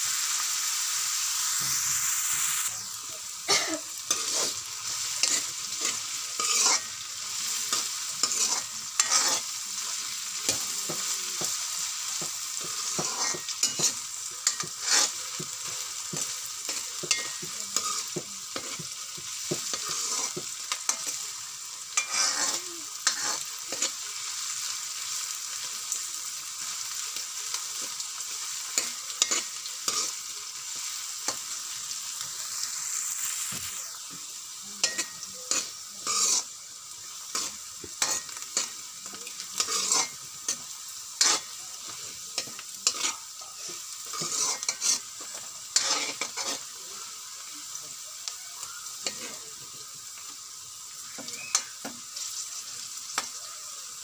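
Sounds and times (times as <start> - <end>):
vegetables sizzling in oil: 0.0 - 54.0
metal spoon scraping wok: 4.0 - 9.6, 12.2 - 21.3, 21.9 - 24.0, 28.8 - 30.2, 34.8 - 36.5, 37.2 - 46.7, 49.0 - 49.4.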